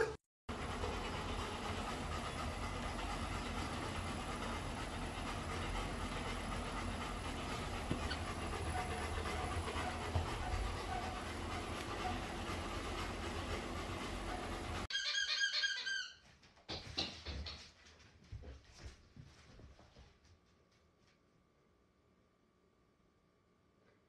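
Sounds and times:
dog panting: 0.0s - 14.9s
treadmill motor hum and belt: 0.5s - 14.9s.

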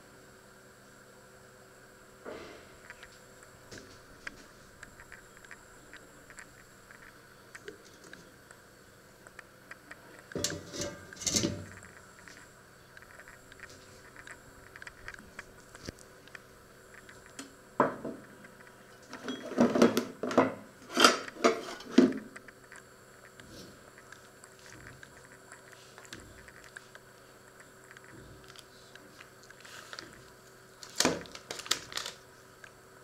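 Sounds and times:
kitchen items clattering: 10.3s - 11.8s, 19.0s - 22.3s.

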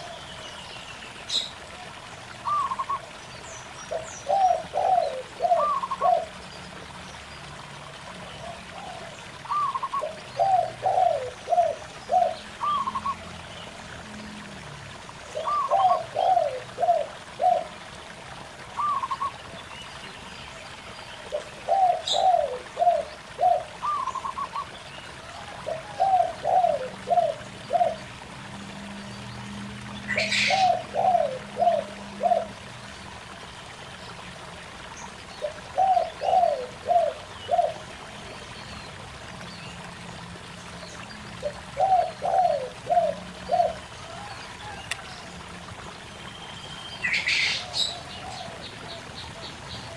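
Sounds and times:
stream trickling over rocks: 0.0s - 49.9s
doves cooing: 2.4s - 3.1s, 3.9s - 6.4s, 8.4s - 13.4s, 15.3s - 17.9s, 18.8s - 19.4s, 21.3s - 28.2s, 30.1s - 32.7s, 35.4s - 38.0s, 41.4s - 45.8s.

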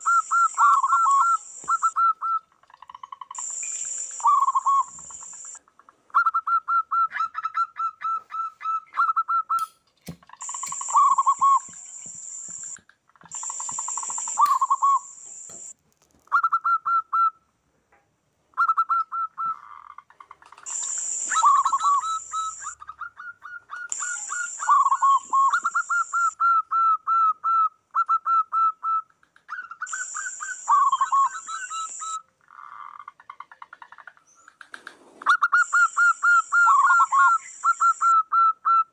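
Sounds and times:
doves cooing: 0.0s - 5.6s, 10.3s - 15.7s, 18.6s - 26.8s, 29.3s - 38.4s
high hissing buzz: 10.4s - 12.8s, 13.4s - 15.8s, 20.7s - 22.7s.

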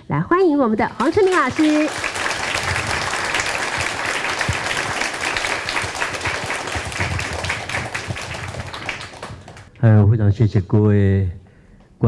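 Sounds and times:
audience clapping: 1.0s - 9.7s.

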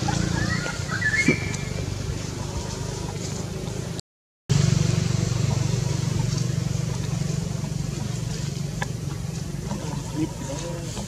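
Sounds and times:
low engine-like hum: 0.0s - 11.0s
brief rising squeak: 0.2s - 1.9s.

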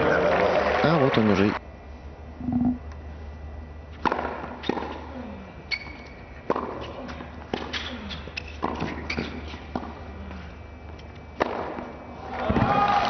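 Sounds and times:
low steady hum: 1.5s - 13.0s
racket striking tennis ball: 4.0s - 5.0s, 11.4s - 11.9s
tennis ball bouncing: 4.0s - 5.0s, 6.4s - 6.9s, 11.4s - 11.9s.

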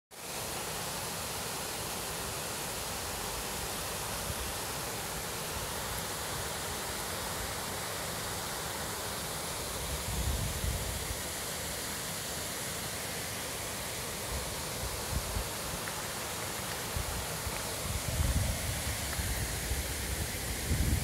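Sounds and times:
waterfall rushing into pool: 0.1s - 21.0s.

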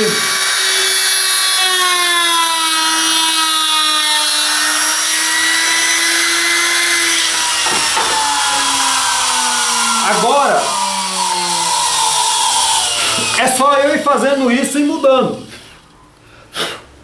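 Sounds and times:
trim router motor whine: 0.0s - 15.5s
router knocking when set down: 7.5s - 8.8s.

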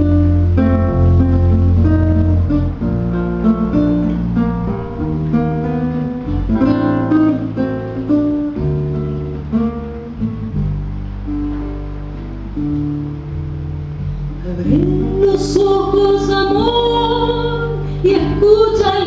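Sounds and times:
acoustic guitars plucking and strumming: 0.0s - 19.0s
sustained low bass notes: 0.0s - 19.0s.

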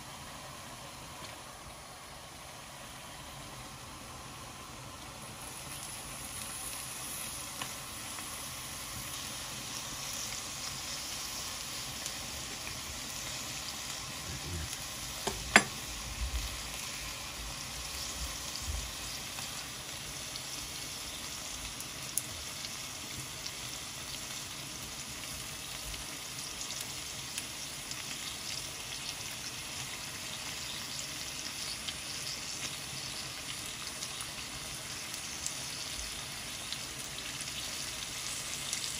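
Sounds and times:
onions sizzling in oil: 0.0s - 38.9s
metal clank: 15.3s - 15.8s.

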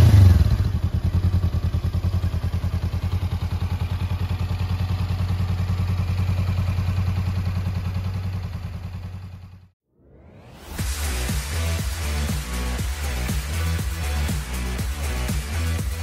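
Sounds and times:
motorcycle engine idling: 0.0s - 9.8s.

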